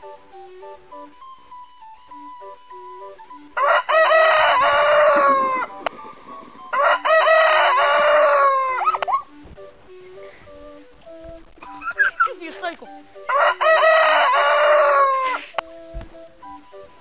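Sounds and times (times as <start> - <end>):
boy imitating rooster crow: 6.8 - 9.2, 13.3 - 15.4.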